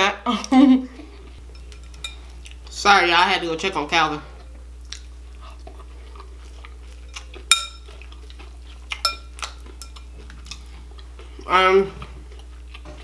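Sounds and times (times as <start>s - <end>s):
faint chewing: 1.2s - 2.8s, 4.3s - 13.0s
spoon clinking against glass bowl: 7.5s - 7.9s, 9.0s - 10.1s.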